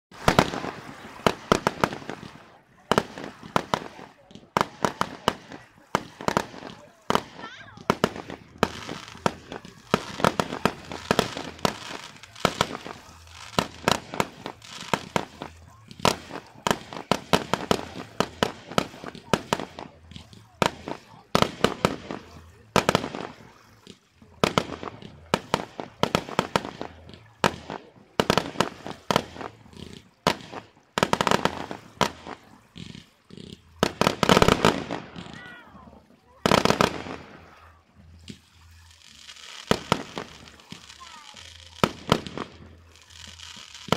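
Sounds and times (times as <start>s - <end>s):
fireworks bursting: 0.1s - 43.9s.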